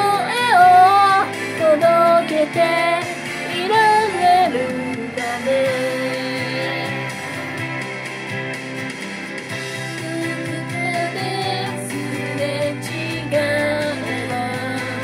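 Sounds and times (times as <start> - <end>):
woman singing pop melody: 0.0 - 8.6, 9.6 - 15.0
instrumental accompaniment: 0.0 - 15.0.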